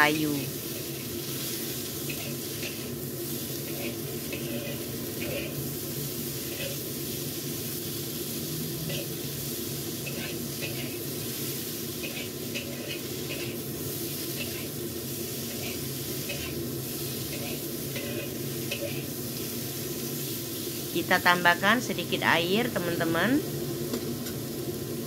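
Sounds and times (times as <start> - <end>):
vegetables sizzling in hot oil: 0.0 - 25.0
metal spatula scraping wok: 0.6 - 7.2, 7.8 - 19.6.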